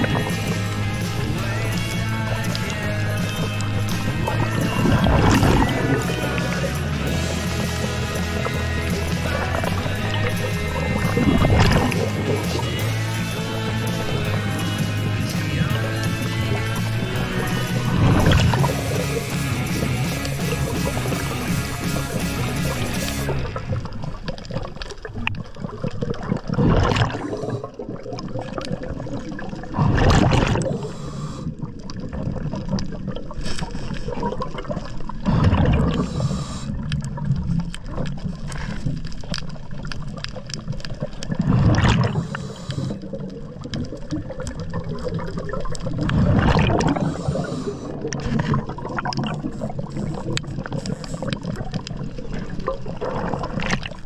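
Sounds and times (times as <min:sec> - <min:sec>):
diver exhaling bubbles: 0:00.0 - 0:54.0
regulator hiss: 0:00.2 - 0:23.3, 0:35.9 - 0:36.8, 0:42.2 - 0:43.1.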